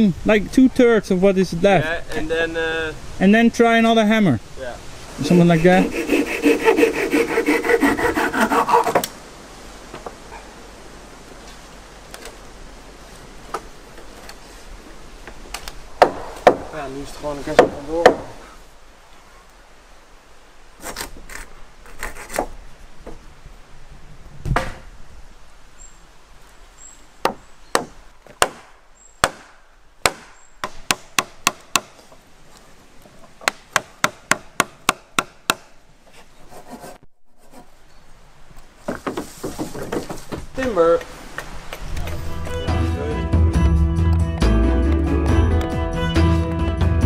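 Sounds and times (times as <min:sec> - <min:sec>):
scraping on timber: 0:05.7 - 0:09.1, 0:20.8 - 0:23.2, 0:36.0 - 0:37.8, 0:38.8 - 0:42.2
wooden peg being hammered: 0:16.0 - 0:16.7, 0:17.5 - 0:18.3, 0:27.2 - 0:32.0, 0:33.4 - 0:35.7
wooden knocks: 0:38.8 - 0:40.5.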